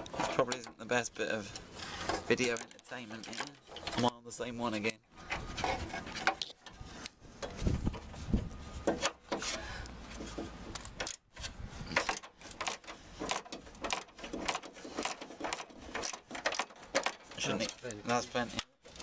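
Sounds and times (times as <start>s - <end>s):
metal knocks and scrapes: 0.0s - 4.1s, 4.7s - 18.2s
rubbing close to microphone: 5.2s - 10.7s.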